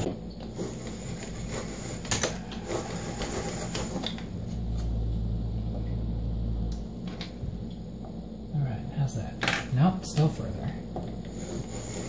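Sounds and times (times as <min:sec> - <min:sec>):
steady low hum: 0:00.0 - 0:12.0
hand drill rasping whir: 0:00.6 - 0:04.3.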